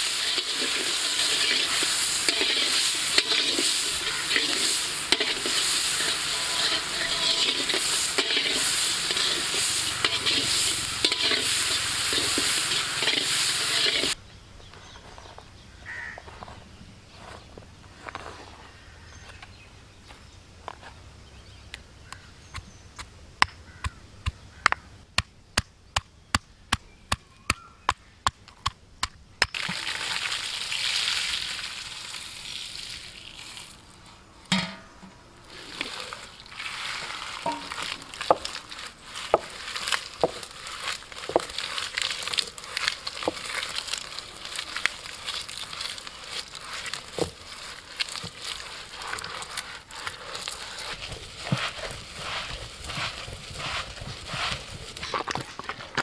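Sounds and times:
stone roller crushing spices: 0.0 - 14.2, 37.0 - 56.0.

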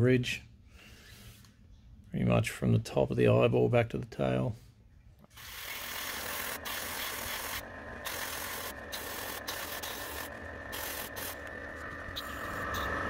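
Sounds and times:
low hum: 4.8 - 13.0
airbrush spraying hiss: 5.3 - 13.0.

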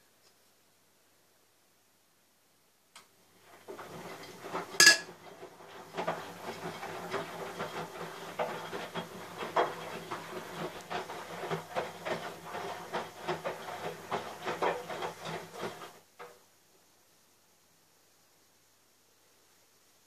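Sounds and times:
metal stein knocking and rubbing: 3.6 - 16.0.

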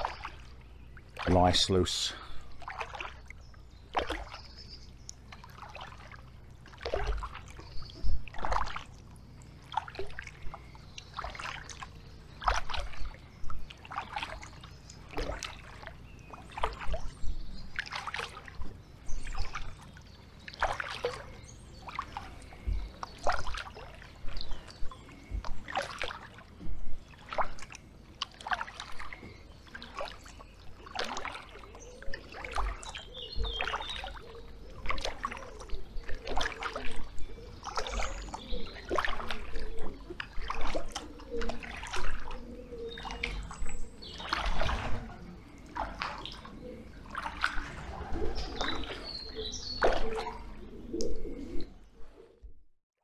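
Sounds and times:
paddle splashing in water: 0.0 - 51.6
low thuds: 22.6 - 23.0.

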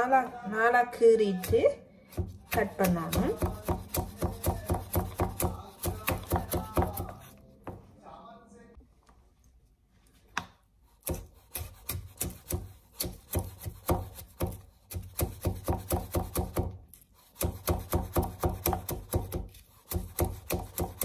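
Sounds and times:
knife chopping on cutting board: 1.4 - 7.8, 11.0 - 21.0.

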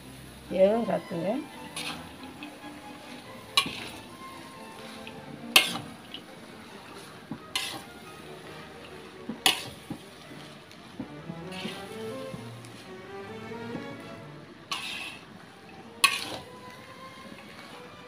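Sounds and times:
spatula scraping a metal wok: 0.9 - 18.0
sharp spatula clanks: 3.6 - 3.9, 5.6 - 5.9, 9.4 - 9.8, 14.7 - 15.2, 16.0 - 16.4.

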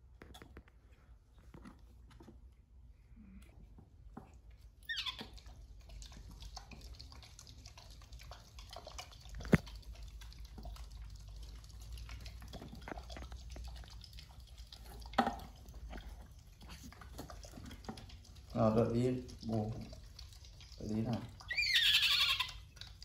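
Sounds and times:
baby monkey squealing: 4.8 - 5.3, 21.5 - 22.6
faint scratching and ticking: 5.2 - 23.0.

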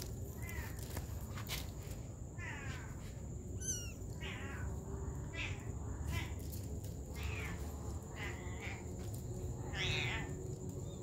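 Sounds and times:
kitten mewing: 3.6 - 4.7.

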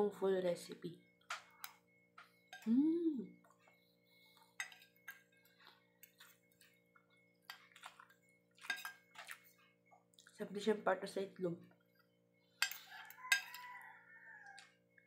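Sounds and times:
chewing: 3.4 - 10.4, 12.7 - 14.8
cutlery clicking on plate: 12.6 - 13.7.

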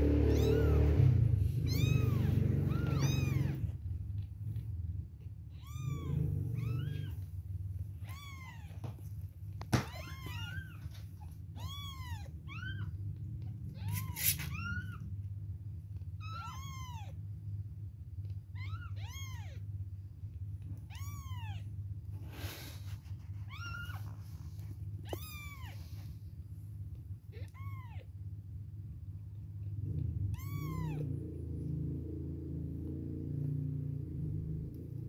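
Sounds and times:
kittens mewing: 0.0 - 4.7, 5.5 - 15.2, 16.1 - 17.2, 18.6 - 19.7, 20.6 - 26.4, 27.2 - 28.2, 29.8 - 31.4
steady low hum: 0.0 - 35.0.

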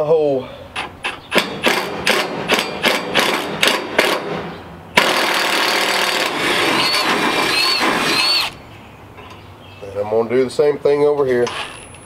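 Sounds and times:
power drill boring into metal: 5.0 - 8.6
high squeal of drill bit: 6.5 - 8.6.

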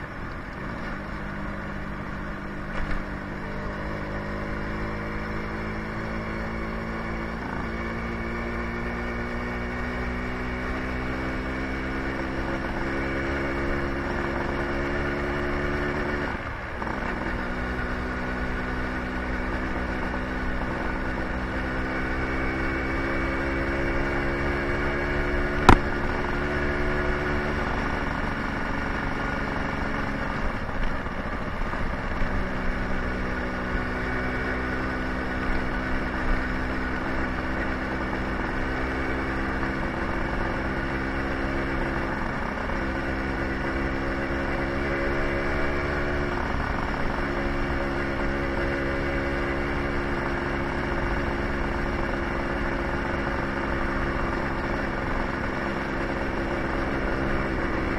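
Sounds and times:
scooter engine running: 10.4 - 57.9
sharp click: 25.6 - 26.4.

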